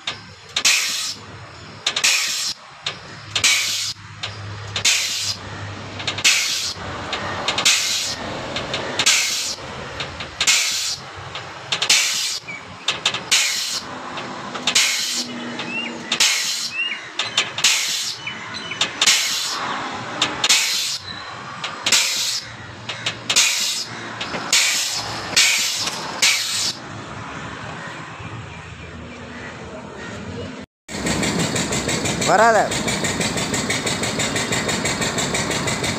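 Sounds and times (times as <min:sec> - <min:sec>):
pneumatic pump hissing: 0:00.0 - 0:26.8.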